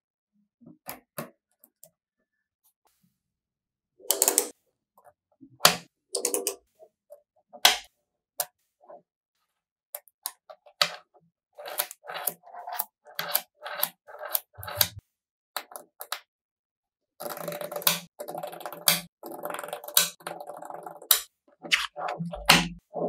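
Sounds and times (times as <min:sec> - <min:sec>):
magnetic balls clicking together: 0:04.1 - 0:04.5.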